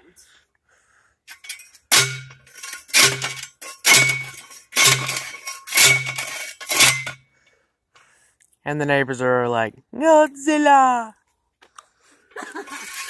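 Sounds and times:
post driver clanging on steel stake: 1.3 - 7.2.

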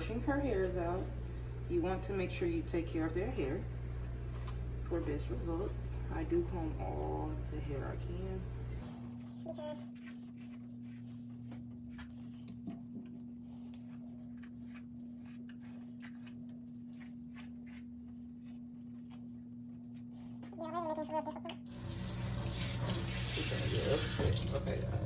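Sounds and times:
water running into a sink: 21.7 - 25.0.

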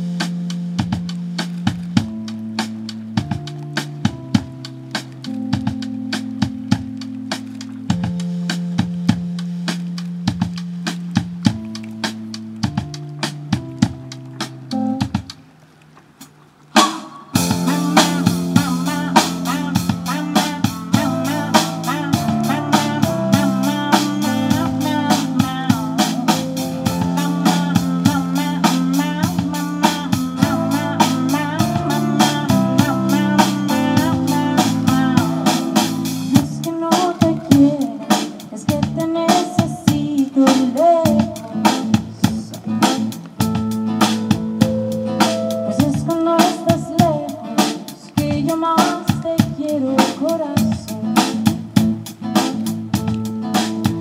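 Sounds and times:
live band playing: 0.0 - 15.4, 16.2 - 54.0
woman singing: 17.4 - 26.3, 26.9 - 42.8, 45.7 - 51.4.

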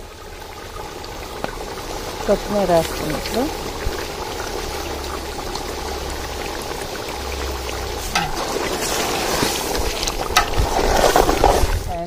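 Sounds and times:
curry bubbling in a pot: 0.0 - 12.0
curry churning as stirred: 8.0 - 11.9.

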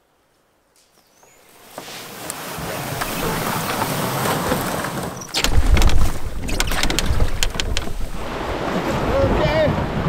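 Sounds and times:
river water rushing: 1.6 - 10.0
sharp knocks and splashes: 1.7 - 9.1
whitewater rapids churning: 1.9 - 10.0
wind buffeting microphone: 2.6 - 10.0.

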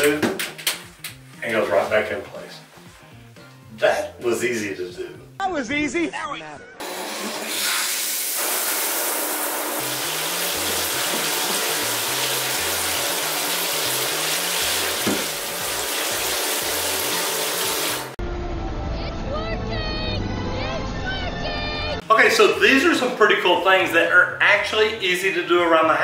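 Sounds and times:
shower spraying on tiles: 6.8 - 18.2.

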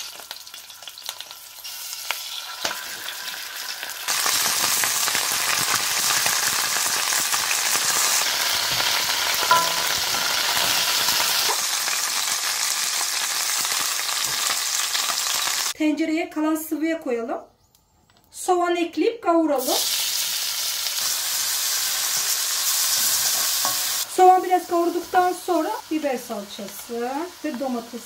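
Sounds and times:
chicken sizzling in oil: 0.0 - 15.8, 19.6 - 28.0
knocks in pot: 9.5 - 10.1.

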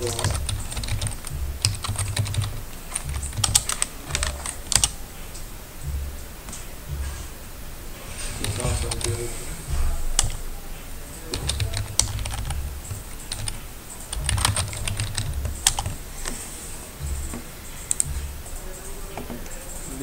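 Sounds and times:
typing on a computer keyboard: 0.0 - 5.0, 11.3 - 16.0.

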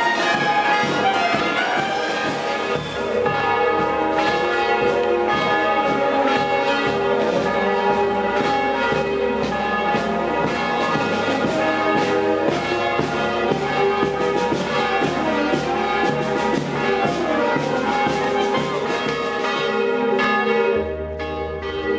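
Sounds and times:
band music: 0.0 - 21.9
church bells ringing a peal: 0.0 - 21.9.

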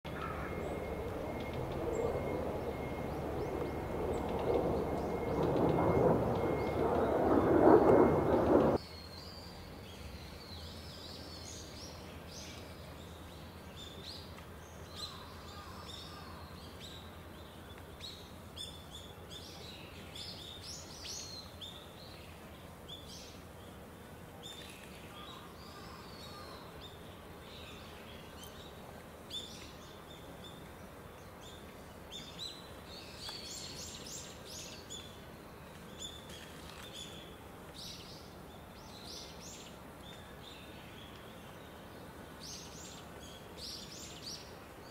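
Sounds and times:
low steady hum: 0.1 - 15.4.

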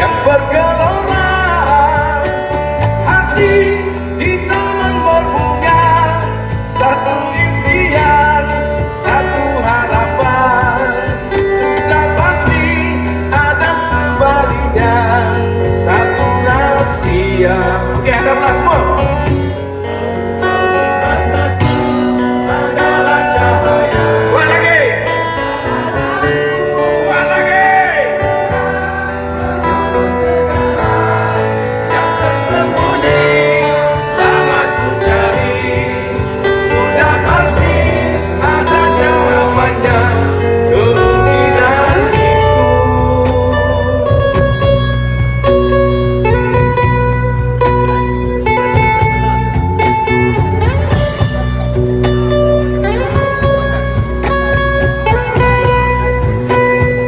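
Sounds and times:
man singing: 0.0 - 45.1
cajon drum: 0.0 - 57.0
electric bass: 0.0 - 57.0
strummed acoustic guitar: 0.0 - 57.0.

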